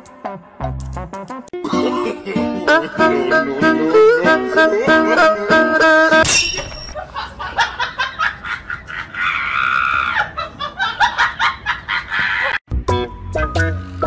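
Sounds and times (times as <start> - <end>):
people laughing: 1.6 - 5.5, 6.9 - 12.6.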